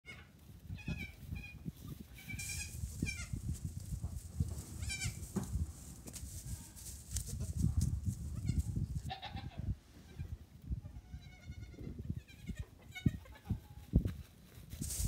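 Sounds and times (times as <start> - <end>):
goat kids bleating: 0.1 - 3.4, 4.8 - 5.3, 8.3 - 13.7
soft low thumps: 2.8 - 9.0.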